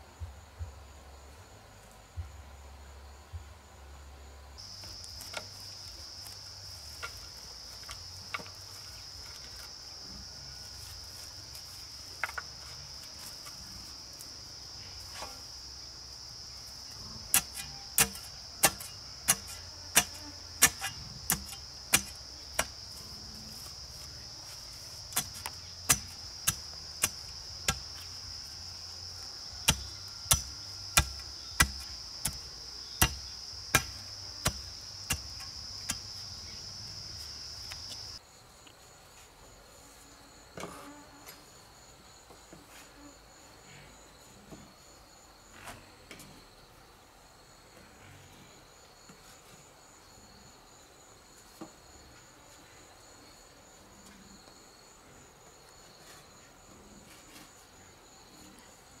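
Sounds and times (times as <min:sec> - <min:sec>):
insects droning: 0:00.0 - 0:59.0
bar ramming soil knocks: 0:17.3 - 0:22.8, 0:25.1 - 0:28.1, 0:33.0 - 0:36.1.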